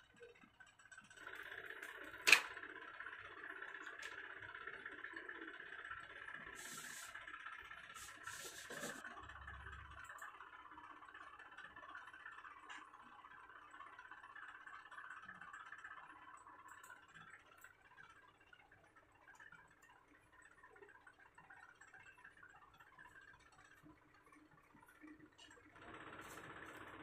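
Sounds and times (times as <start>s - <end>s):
steady background whir: 0.0s - 27.0s
scrapes and rustles: 8.0s - 9.0s.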